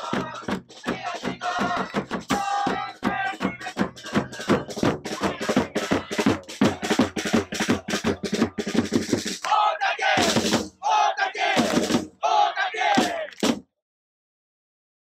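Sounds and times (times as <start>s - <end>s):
crowd chanting: 0.0s - 8.4s, 9.4s - 13.4s
drum beating fast: 0.0s - 12.2s, 12.8s - 13.6s.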